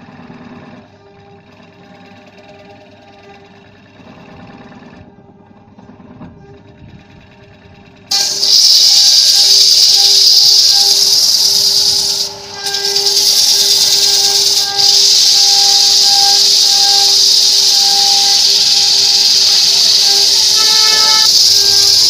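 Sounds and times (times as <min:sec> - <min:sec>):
lathe hum: 0:00.0 - 0:22.0
lathe tool cutting wood hiss: 0:08.1 - 0:22.0.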